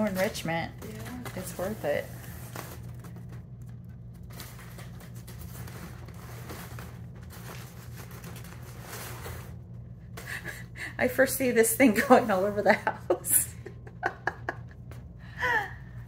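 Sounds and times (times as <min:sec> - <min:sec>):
steady low hum: 0:00.0 - 0:16.0
kitten rustling in fabric tunnel: 0:04.2 - 0:09.6.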